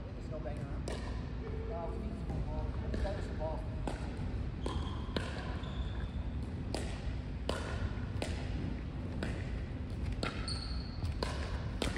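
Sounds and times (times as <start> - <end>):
pickleballs knocking: 2.3 - 5.6, 6.4 - 11.9.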